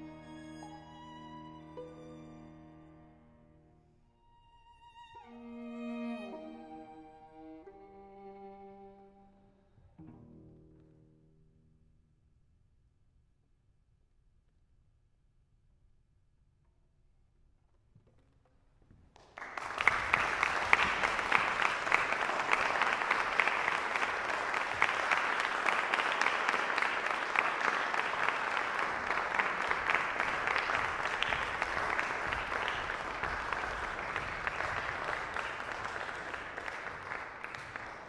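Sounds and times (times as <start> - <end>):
audience applause: 19.2 - 38.0.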